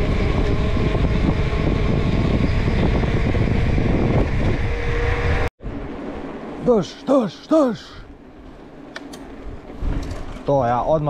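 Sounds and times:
wind rumble on microphone: 0.0 - 6.6, 9.3 - 11.0.

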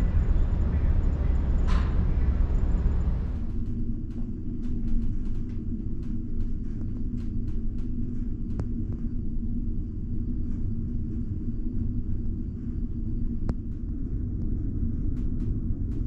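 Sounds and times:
ferry engines droning: 0.0 - 3.6
steady hum: 0.0 - 14.3.

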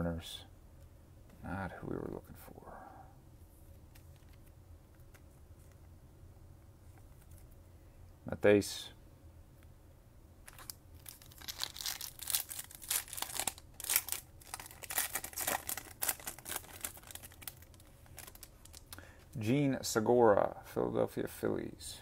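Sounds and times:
foil wrapper tearing and crinkling: 10.5 - 19.0.

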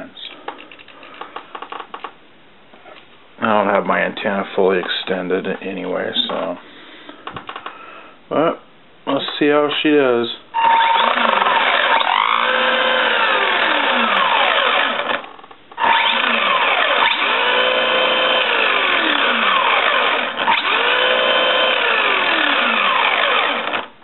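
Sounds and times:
toy car electric motor whining: 10.6 - 23.9.

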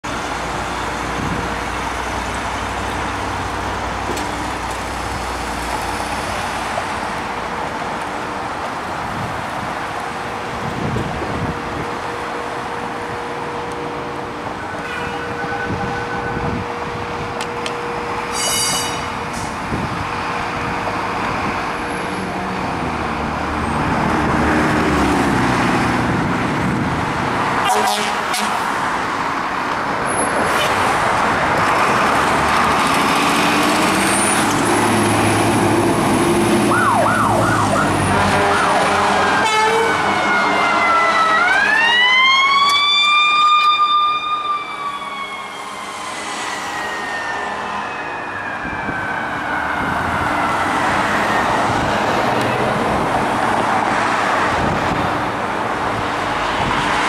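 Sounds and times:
fire engine engine noise: 0.0 - 57.0
siren wailing: 36.6 - 51.9
fast warbling siren: 36.7 - 38.8, 39.4 - 50.7.

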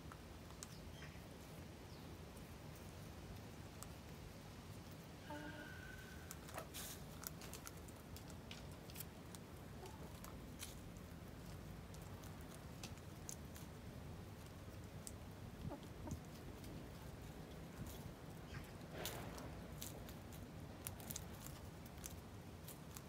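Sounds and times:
hens pecking: 0.0 - 23.0
hens clucking: 15.6 - 16.4.

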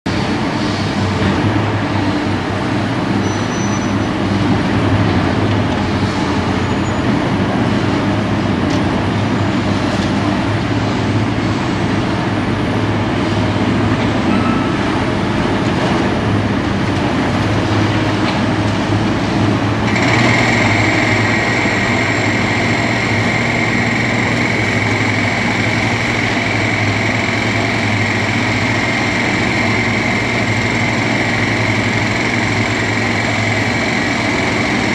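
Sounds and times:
excavator diesel engine running: 0.1 - 34.9
high-pitched whine: 19.7 - 34.9.

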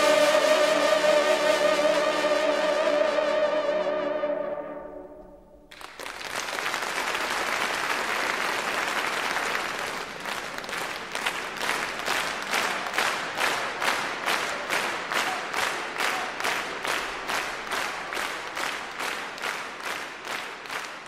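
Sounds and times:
audience applause: 5.7 - 21.0.

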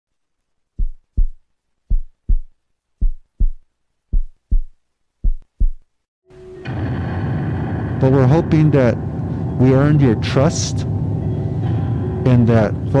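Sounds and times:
heartbeat thumps: 0.8 - 5.9.

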